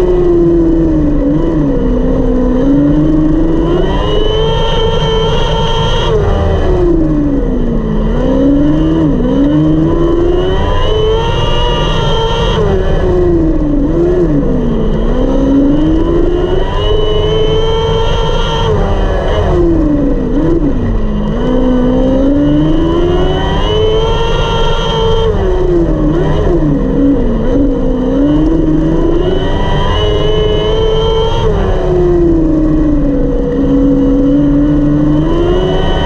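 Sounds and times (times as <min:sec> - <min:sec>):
racing engine revving: 0:00.0 - 0:36.0.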